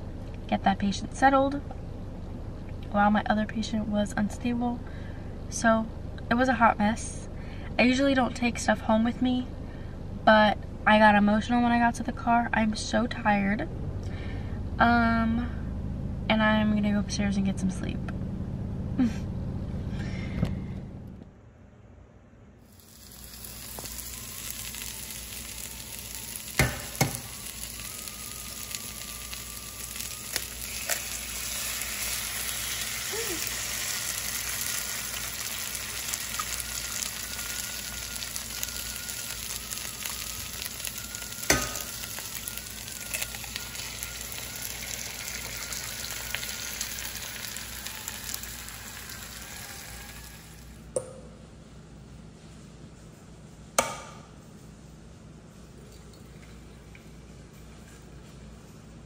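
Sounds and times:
food sizzling in a pan: 22.6s - 50.9s.

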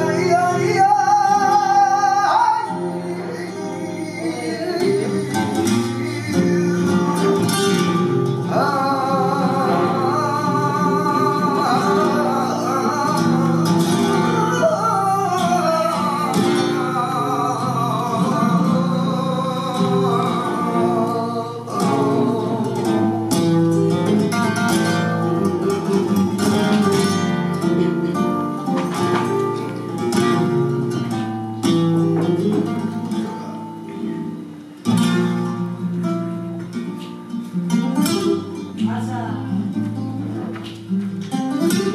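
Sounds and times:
person singing: 0.0s - 26.6s
acoustic guitar strumming: 0.0s - 41.9s.

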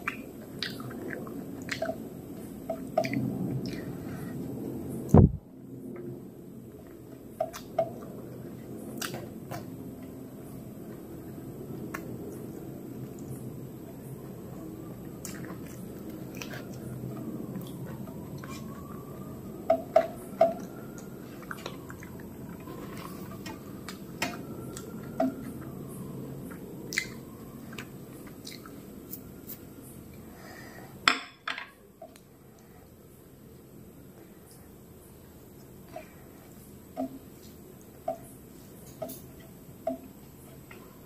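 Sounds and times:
chewing and mouth clicks: 0.0s - 4.0s, 6.9s - 10.2s, 11.8s - 19.3s, 19.9s - 29.7s.

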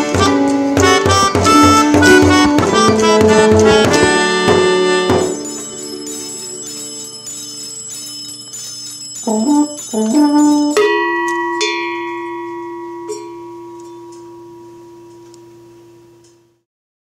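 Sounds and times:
folk instruments playing carol: 0.0s - 11.0s.

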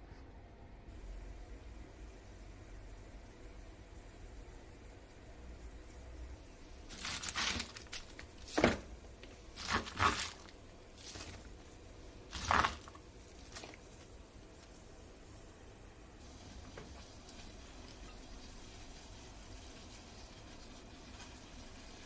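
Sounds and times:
cabbage leaves rustling and crinkling: 6.8s - 14.2s.

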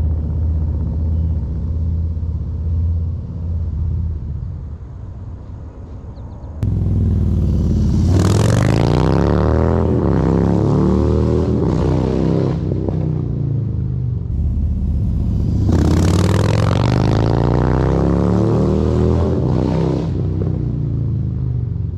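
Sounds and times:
motorcycle accelerating past: 6.6s - 21.4s.

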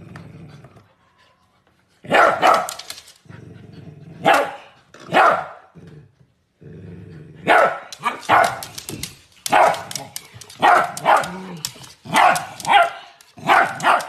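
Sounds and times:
low growl: 0.0s - 1.0s, 3.2s - 4.2s, 5.7s - 7.5s
puppy barking: 2.1s - 2.8s, 4.2s - 5.7s, 7.4s - 8.8s, 9.4s - 14.0s.

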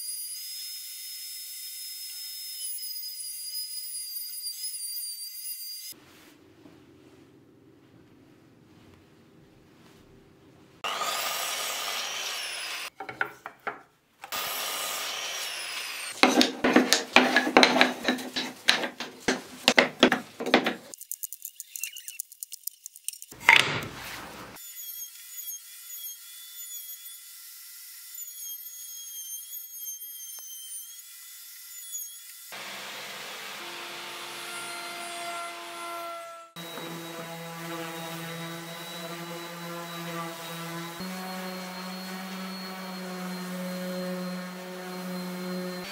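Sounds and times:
power tool cutting wood: 0.0s - 6.0s, 10.8s - 21.0s, 24.5s - 45.9s
rough strokes against wood: 16.0s - 21.0s.

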